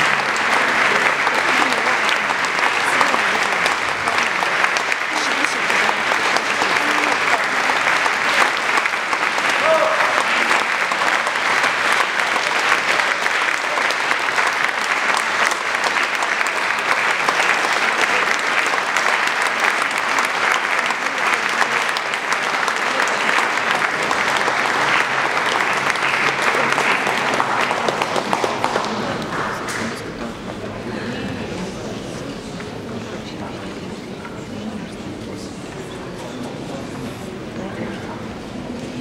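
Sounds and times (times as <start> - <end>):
audience applauding: 0.0 - 30.8.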